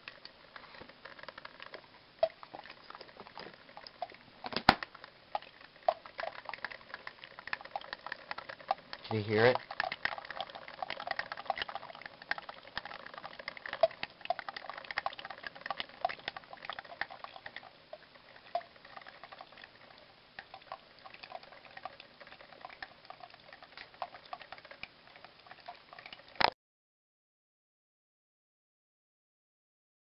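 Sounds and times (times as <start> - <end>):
coffee maker crackling pops: 0.0 - 17.6, 23.7 - 24.9.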